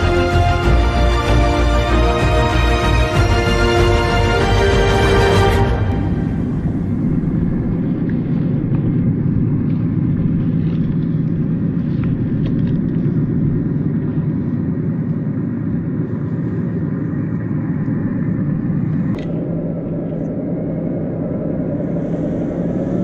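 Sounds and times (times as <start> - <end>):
truck engine rumble: 0.0 - 23.0.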